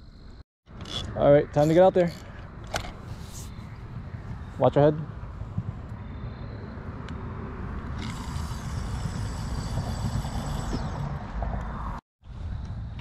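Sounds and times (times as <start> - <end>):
wind on microphone: 3.0 - 13.0
fishing reel whirring: 7.9 - 11.1.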